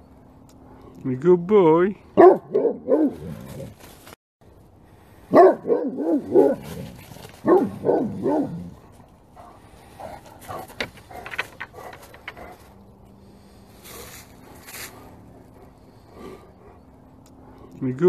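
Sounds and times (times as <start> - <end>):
dog barking: 2.2 - 3.3, 5.3 - 6.6, 7.4 - 8.7.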